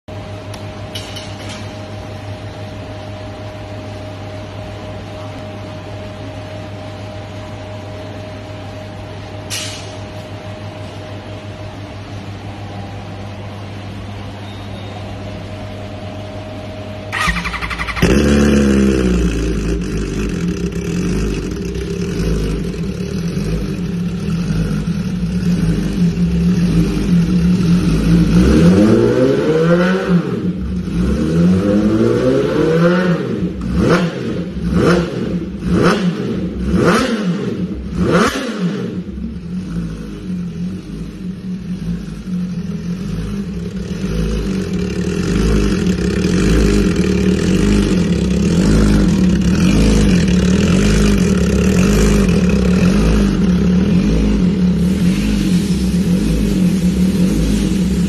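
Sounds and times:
low hum: 0.1 - 29.3
click: 0.5 - 1.1
motorcycle engine idling and revving: 15.2 - 58.0
motorcycle starter cranking: 17.1 - 18.5.

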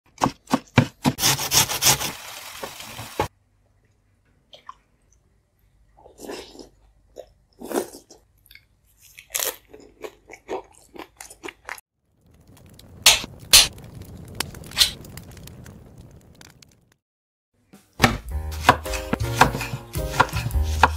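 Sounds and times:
knife chopping on wooden board: 0.1 - 2.0, 18.0 - 20.9
crunching and chewing food: 3.7 - 12.8.

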